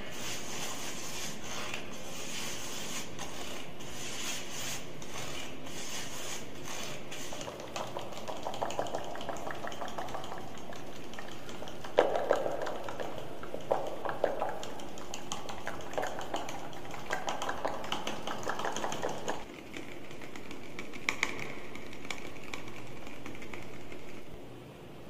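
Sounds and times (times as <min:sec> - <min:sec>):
mouth clicking and tapping: 0:07.4 - 0:24.2.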